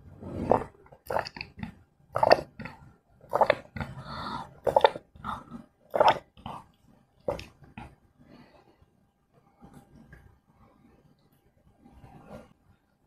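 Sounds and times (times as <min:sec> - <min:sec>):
person gulping a drink: 0:00.3 - 0:08.0.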